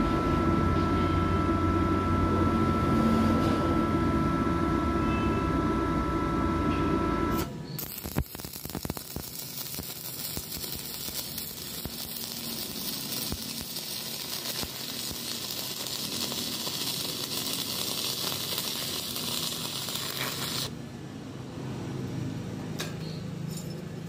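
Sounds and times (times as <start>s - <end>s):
welding arc crackling and sizzling: 7.3s - 20.8s.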